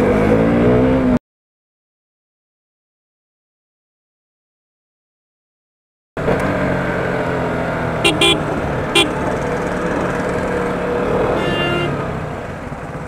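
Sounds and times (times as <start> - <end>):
motorcycle engine running: 6.2 - 13.0
vehicle horn toots: 8.0 - 9.3, 11.4 - 12.1.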